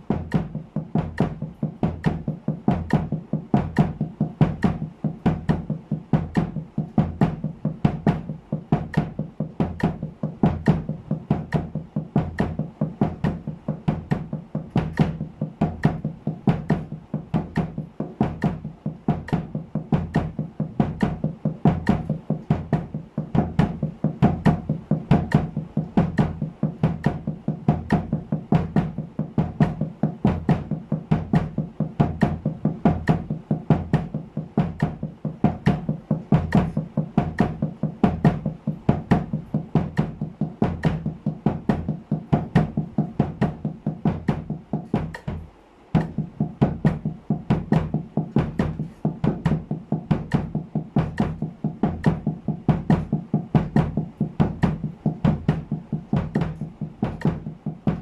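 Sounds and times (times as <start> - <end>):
bass drum kicks: 0.0 - 58.0
muffled snare drum strokes: 0.0 - 58.0.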